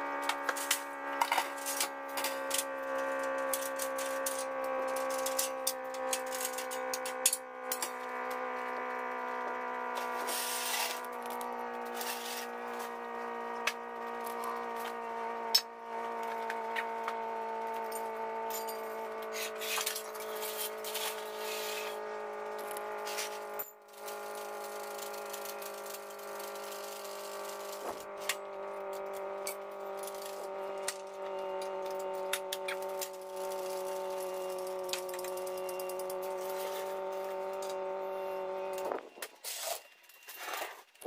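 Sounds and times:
steady droning hum: 0:00.0 - 0:41.0
metal clinks and rattles: 0:17.8 - 0:21.4.

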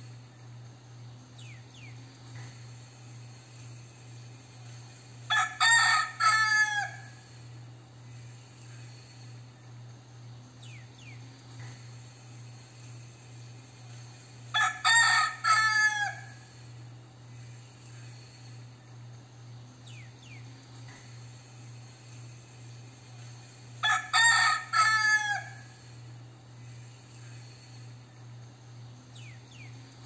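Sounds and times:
rooster crowing: 0:05.3 - 0:07.4, 0:14.5 - 0:16.6, 0:23.8 - 0:25.9.

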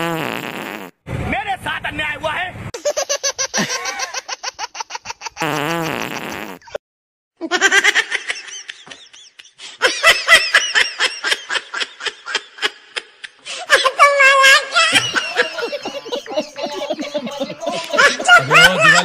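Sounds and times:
fake fart sound: 0:00.0 - 0:01.0, 0:05.4 - 0:06.8
people laughing: 0:03.4 - 0:04.5, 0:07.4 - 0:19.0.

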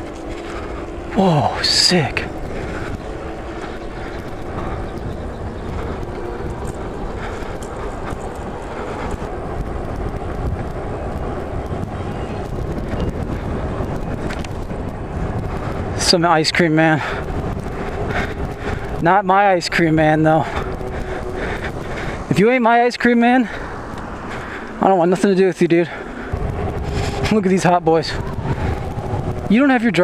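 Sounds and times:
road noise from riding: 0:00.0 - 0:30.0
wind rushing over microphone: 0:00.0 - 0:30.0.

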